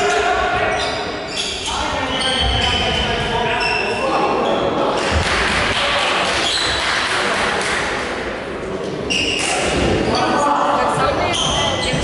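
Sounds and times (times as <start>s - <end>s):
players and spectators voices: 0.0s - 12.0s.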